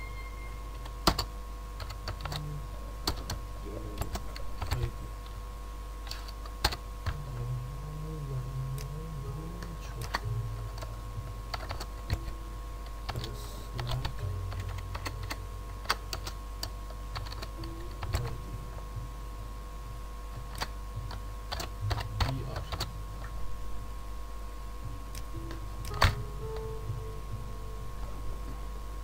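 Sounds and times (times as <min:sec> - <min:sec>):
steady low hum: 0:00.0 - 0:29.0
computer keyboard typing: 0:01.0 - 0:03.4, 0:04.0 - 0:04.9, 0:09.6 - 0:10.9, 0:11.5 - 0:12.3, 0:13.0 - 0:18.4, 0:20.5 - 0:22.9.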